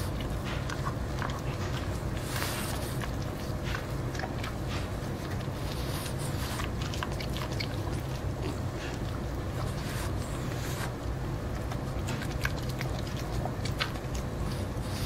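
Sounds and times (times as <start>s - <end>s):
dog chewing corn: 0.0s - 15.0s.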